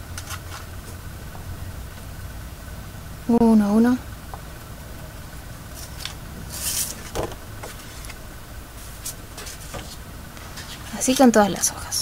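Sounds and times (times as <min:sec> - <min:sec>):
low steady hum: 0:00.0 - 0:12.0
paper rustling: 0:05.7 - 0:08.2, 0:08.8 - 0:11.0
paper sliding swish: 0:05.8 - 0:07.1.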